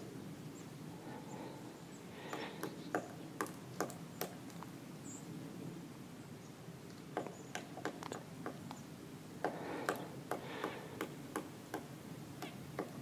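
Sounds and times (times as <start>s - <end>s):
woodpecker pecking on wood: 2.3s - 4.6s, 7.2s - 8.7s, 9.4s - 13.0s.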